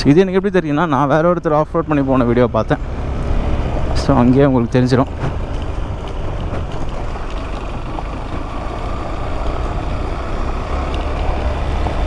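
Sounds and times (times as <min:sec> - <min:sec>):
motorcycle engine running: 0:06.9 - 0:12.0.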